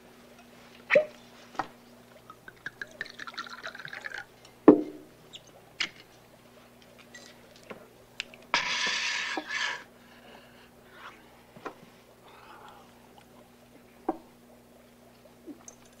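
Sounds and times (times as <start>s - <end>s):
wine pouring into glass: 2.2s - 4.3s
bottle knocking on table: 4.7s - 5.0s.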